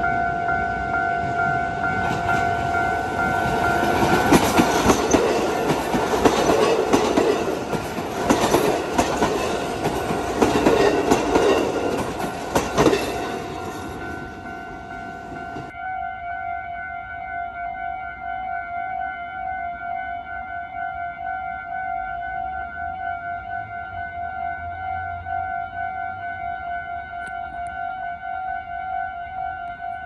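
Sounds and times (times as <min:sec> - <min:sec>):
crossing warning bell ringing: 0:00.0 - 0:30.0
train wheels clacking over rail joints: 0:01.9 - 0:15.7.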